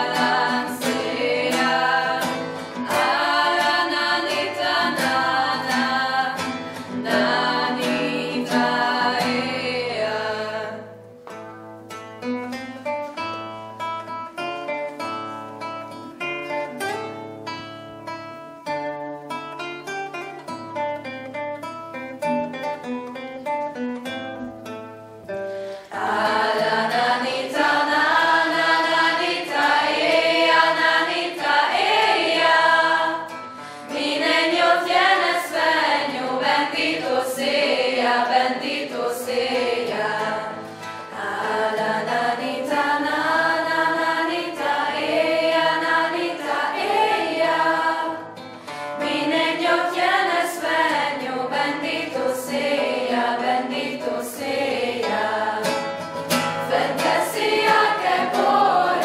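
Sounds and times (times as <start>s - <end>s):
choir singing: 0.0s - 11.0s, 25.8s - 59.0s
classical guitar plucking: 0.0s - 59.0s.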